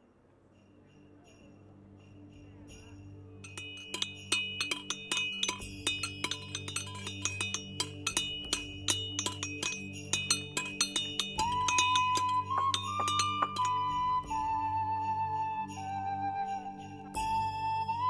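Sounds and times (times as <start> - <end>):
hammers striking metal on anvil: 3.5 - 13.8.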